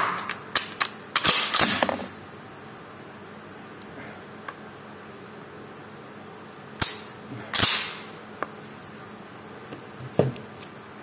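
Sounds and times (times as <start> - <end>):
shotgun firing: 7.6 - 8.1.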